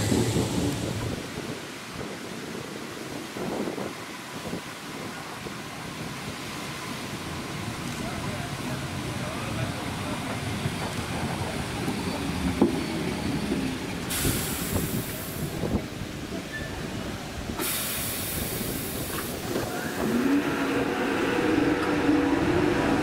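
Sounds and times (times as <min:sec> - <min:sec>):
train low rumble: 0:00.0 - 0:23.0
compressed air hiss: 0:14.1 - 0:15.7, 0:17.6 - 0:19.5
traction motor whine: 0:19.7 - 0:23.0.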